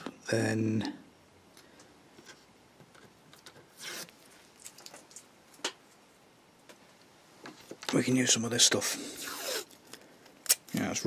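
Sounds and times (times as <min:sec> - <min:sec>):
tape rustling: 0:02.2 - 0:06.0.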